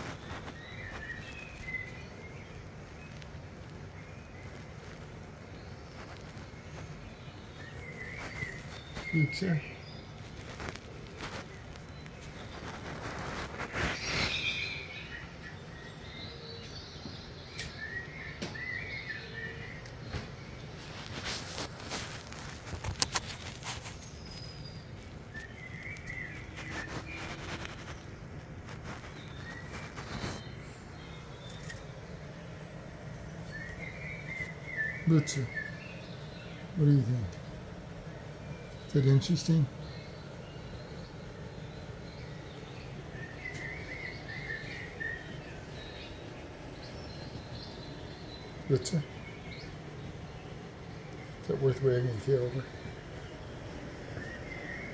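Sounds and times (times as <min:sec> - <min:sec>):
birds chirping through tv speakers: 0:00.0 - 0:54.9
low background noise: 0:00.0 - 0:54.9
sharp clicks: 0:17.5 - 0:17.8.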